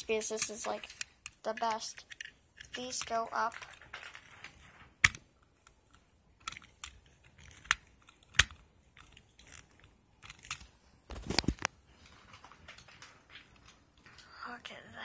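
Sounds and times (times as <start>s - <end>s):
toy truck clicks and taps: 0.0s - 3.8s
rubbing of toy: 0.0s - 4.8s.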